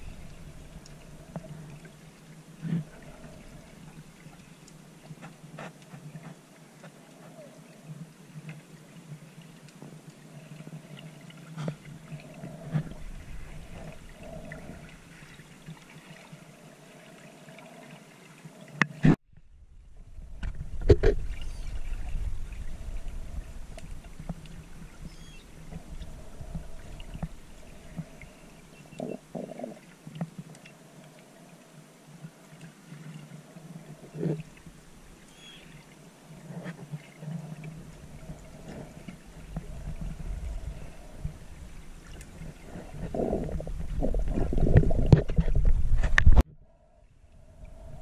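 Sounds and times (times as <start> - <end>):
low underwater rumble: 0.0 - 5.5, 11.6 - 15.8, 19.3 - 29.8, 36.3 - 48.0.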